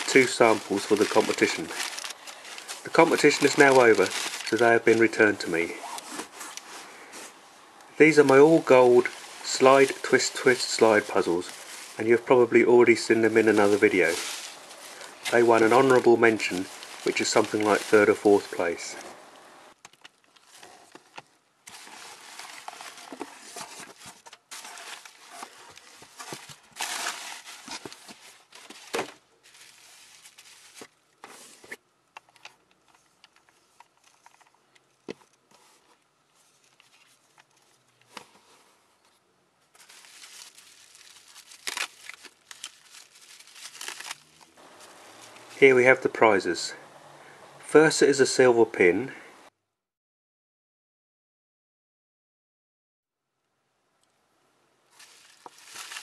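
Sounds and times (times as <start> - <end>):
newspaper rustling: 0.0 - 7.4, 8.0 - 31.8, 39.7 - 46.1, 54.9 - 56.0
bubble wrap crinkling: 0.0 - 31.8, 39.7 - 45.7, 54.9 - 56.0.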